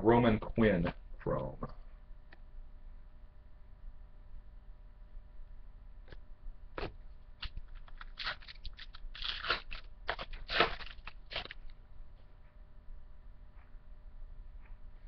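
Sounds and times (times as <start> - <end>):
wrapper crinkling: 7.4 - 11.7.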